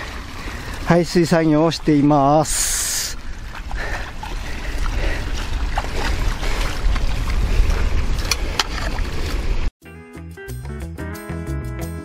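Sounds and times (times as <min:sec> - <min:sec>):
wind rumble on microphone: 0:03.2 - 0:09.7.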